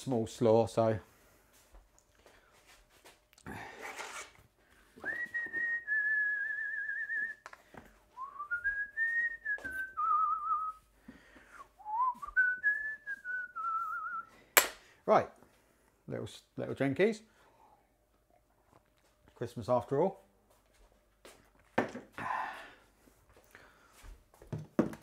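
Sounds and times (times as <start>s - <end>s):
man whistling a slow tune: 5.0s - 7.5s, 8.2s - 10.9s, 11.5s - 14.4s.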